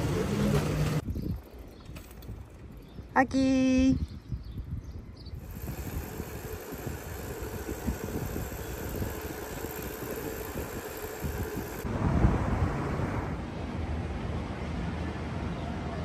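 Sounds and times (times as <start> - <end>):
wind buffeting microphone: 1.0 - 3.2, 3.9 - 13.6.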